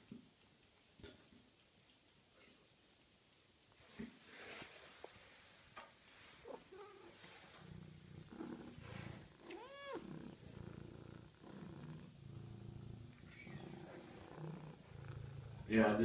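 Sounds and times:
cat purring: 0.0s - 16.0s
cat meowing: 6.4s - 7.2s, 9.4s - 10.2s.

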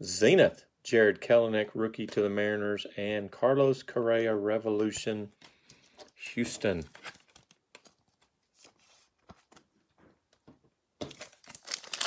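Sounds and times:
trading cards being handled: 4.7s - 12.0s
foil wrapper crinkling: 11.0s - 12.0s.

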